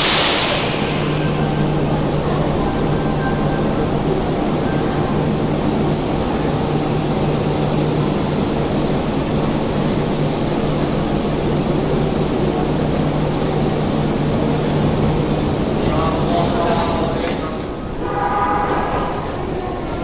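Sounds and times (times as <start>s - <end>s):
electric train equipment humming: 0.0s - 20.0s.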